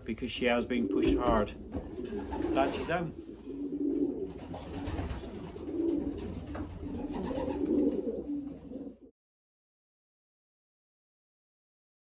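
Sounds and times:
pigeons cooing: 0.4 - 9.1.

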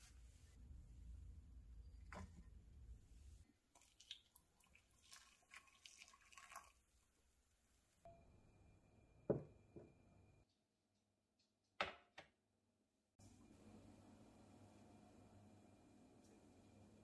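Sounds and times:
water pouring into a bowl: 3.7 - 6.9.

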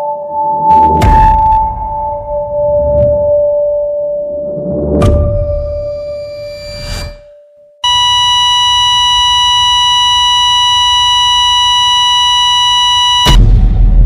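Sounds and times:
electronic beep tone: 7.8 - 13.4.

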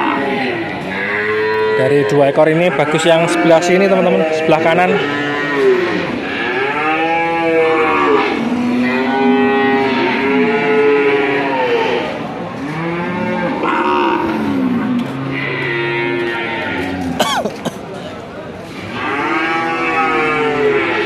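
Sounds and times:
cattle mooing: 0.0 - 17.3, 18.9 - 21.0.

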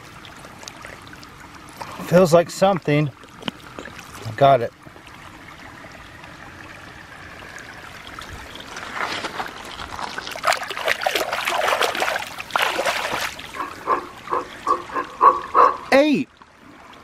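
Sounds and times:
stream water trickling: 0.0 - 17.0
hand splashing toy in water: 10.4 - 13.4.

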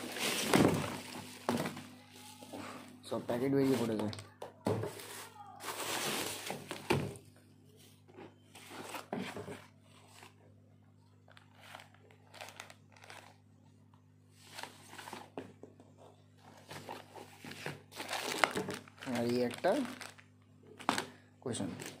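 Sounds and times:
bubble wrap crinkling: 0.0 - 2.4, 5.0 - 6.8, 11.3 - 13.5, 16.8 - 22.0.

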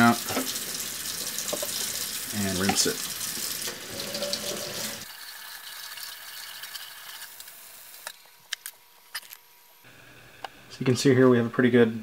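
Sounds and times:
tap water running into sink: 0.0 - 6.9.

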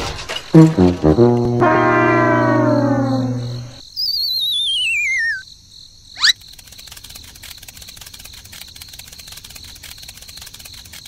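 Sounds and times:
wobbling falling whistle: 1.5 - 5.4
crickets chirping: 1.7 - 11.0.

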